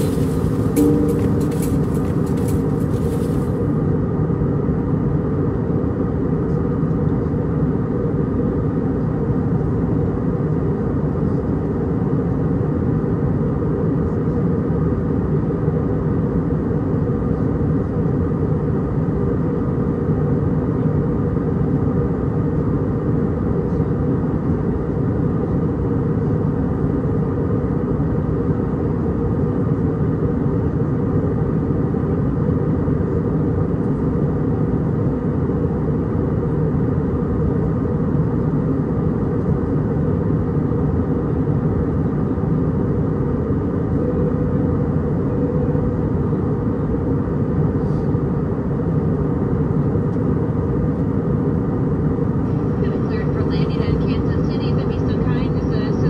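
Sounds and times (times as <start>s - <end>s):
airflow over fuselage: 0.0s - 3.7s
aircraft cabin engine rumble: 0.0s - 56.0s.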